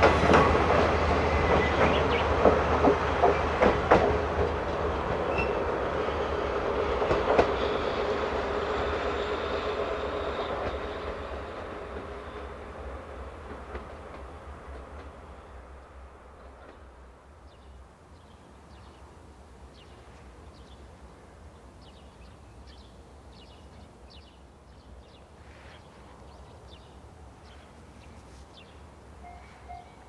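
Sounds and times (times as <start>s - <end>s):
small birds chirping: 19.7s - 30.0s.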